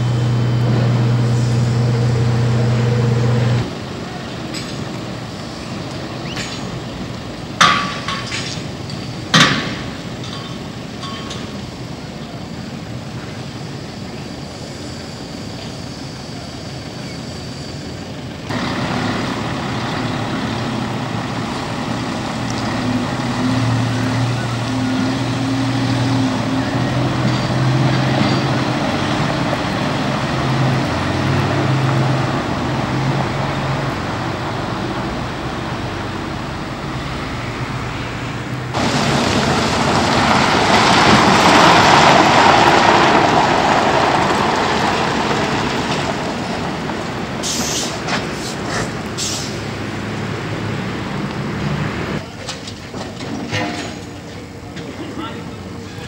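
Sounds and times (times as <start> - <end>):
heavy vehicle engine under load: 0.0 - 56.0.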